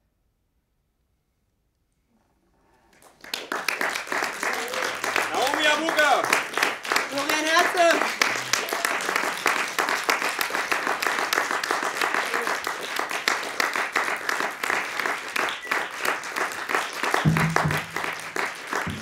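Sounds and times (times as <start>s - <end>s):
audience applauding: 2.9s - 19.0s
double bass low notes: 17.3s - 18.2s.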